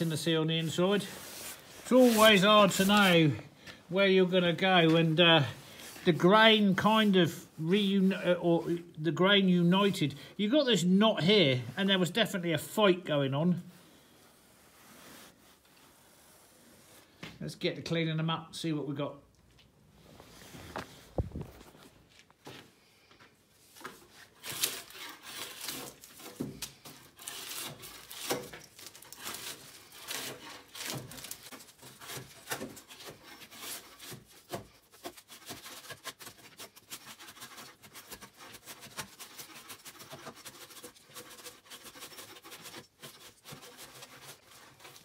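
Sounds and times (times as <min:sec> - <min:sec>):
blade scraping bark off logs: 0:00.0 - 0:03.3, 0:24.1 - 0:45.0.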